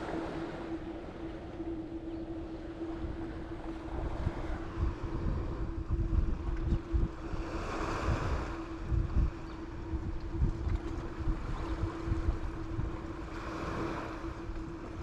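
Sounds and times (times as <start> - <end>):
steady low hum: 0.0 - 15.0
wind buffeting microphone: 0.0 - 15.0
waves washing on beach: 7.2 - 8.8, 13.1 - 14.6.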